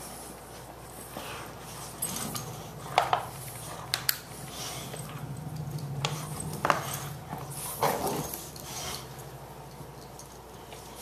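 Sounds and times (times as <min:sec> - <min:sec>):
dogs growling: 0:01.1 - 0:09.5.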